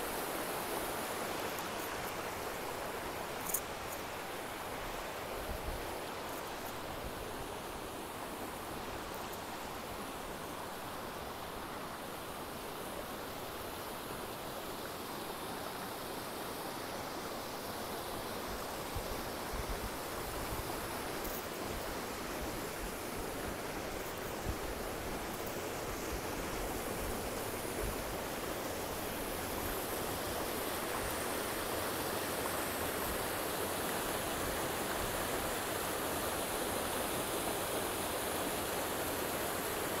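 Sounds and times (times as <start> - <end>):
waterfall rushing and splashing: 0.0 - 40.0.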